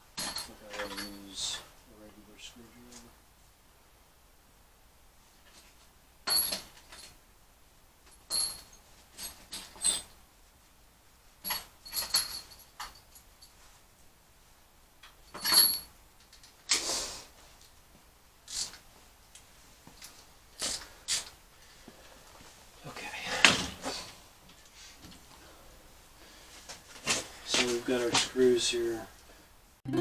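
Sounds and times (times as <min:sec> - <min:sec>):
metal hardware and tools clinking: 0:00.2 - 0:01.6, 0:11.4 - 0:13.3, 0:15.0 - 0:16.5.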